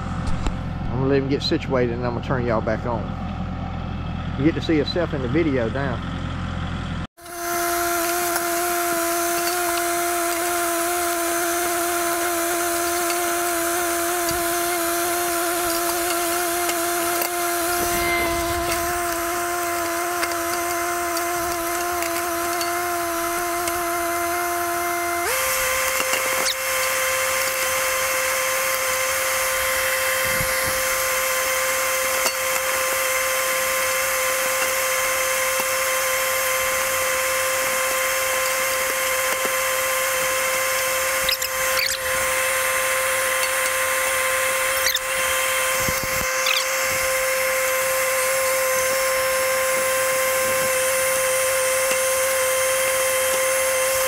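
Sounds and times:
tractor diesel engine running: 0:00.0 - 0:07.1, 0:09.1 - 0:26.4.

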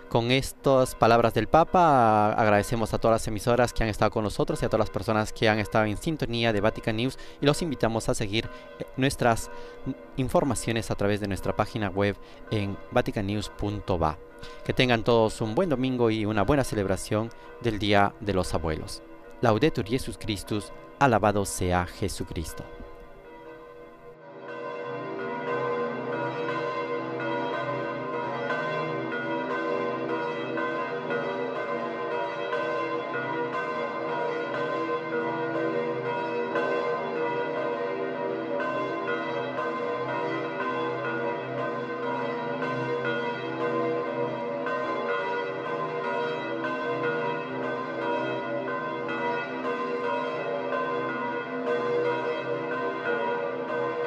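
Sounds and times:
church bells pealing: 0:00.0 - 0:54.0.

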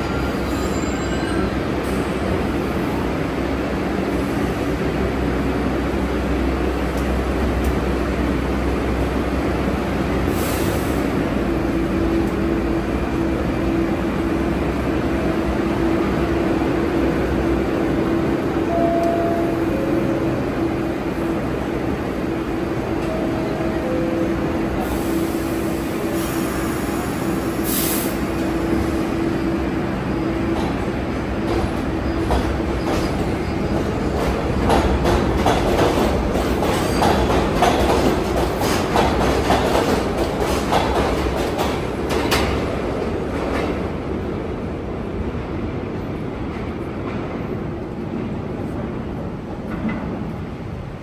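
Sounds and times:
subway train whine: 0:00.0 - 0:51.0
train wheels clacking: 0:30.5 - 0:43.8.

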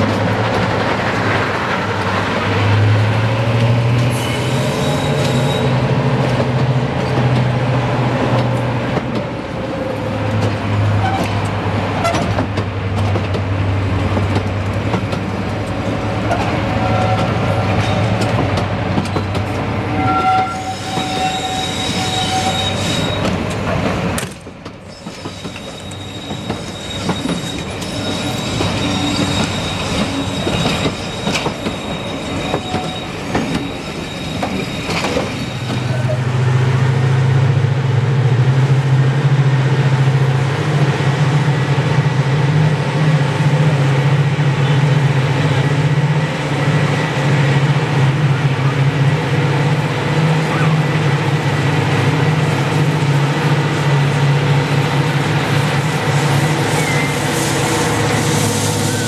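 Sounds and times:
wheels squealing: 0:19.9 - 0:23.3, 0:24.9 - 0:36.2, 0:56.2 - 0:59.0
train wheels clicking over rail joints: 0:23.1 - 0:35.9.

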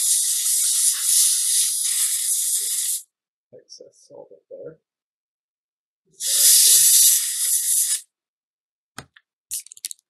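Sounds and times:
compressed air can hissing: 0:00.0 - 0:03.1, 0:06.2 - 0:08.1.

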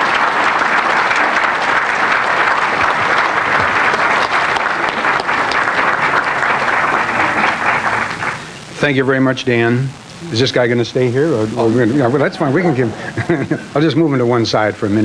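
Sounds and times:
audience applauding: 0:00.0 - 0:08.6, 0:12.0 - 0:13.9.

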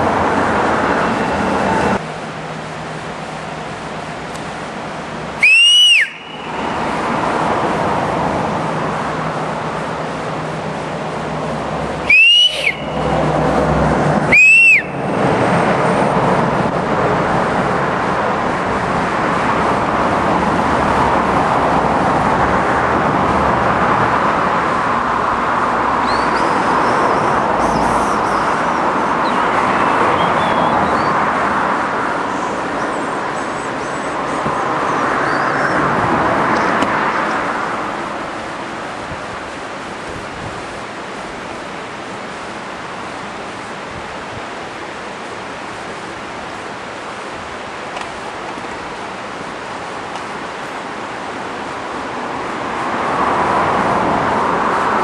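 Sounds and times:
steady rushing noise: 0:00.0 - 0:55.0
short loud whistles: 0:05.4 - 0:06.5, 0:12.1 - 0:13.1, 0:14.3 - 0:15.0.

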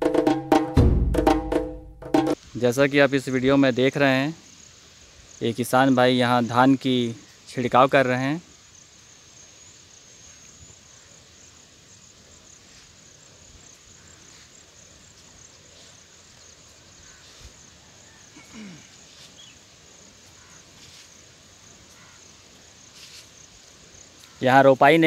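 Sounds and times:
quiet field ambience: 0:00.0 - 0:25.0
insects chirring: 0:02.0 - 0:25.0.

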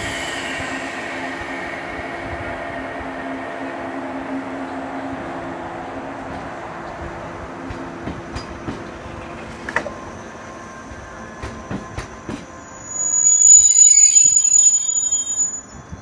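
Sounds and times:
high-pitched brake squeal: 0:00.0 - 0:04.0, 0:12.5 - 0:16.0
train rolling with low hum: 0:00.0 - 0:16.0.

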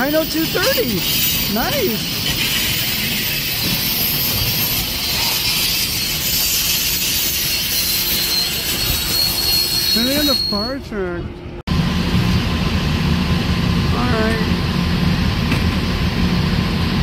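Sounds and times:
train wheels rumbling on rails: 0:00.0 - 0:17.0
high-pitched wheel squeal: 0:00.5 - 0:10.8.

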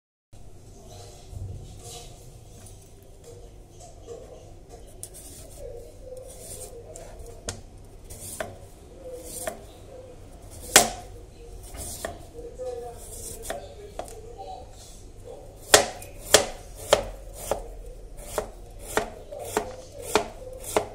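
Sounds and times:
knife slicing through pumpkin: 0:08.1 - 0:08.6, 0:09.2 - 0:09.6, 0:13.0 - 0:14.1, 0:15.6 - 0:20.9.

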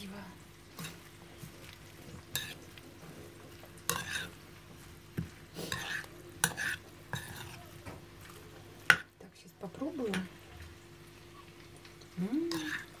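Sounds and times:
metal spoon scraping bowl: 0:03.9 - 0:04.4, 0:05.7 - 0:07.6.

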